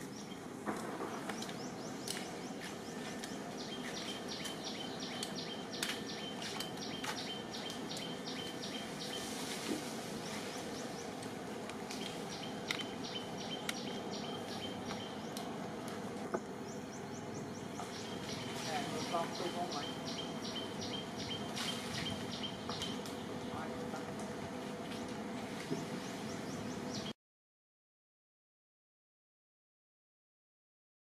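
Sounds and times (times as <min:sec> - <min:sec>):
insects buzzing: 0:00.0 - 0:27.1.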